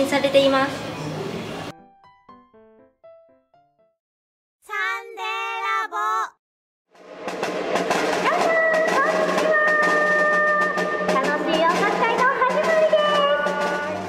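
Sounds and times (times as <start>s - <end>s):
live percussion and music: 7.0s - 14.0s.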